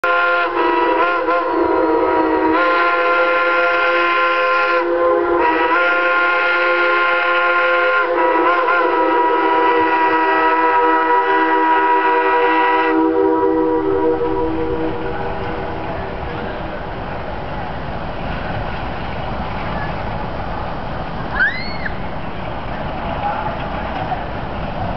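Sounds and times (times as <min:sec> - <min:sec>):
steam locomotive whistle blast: 0:00.0 - 0:15.8.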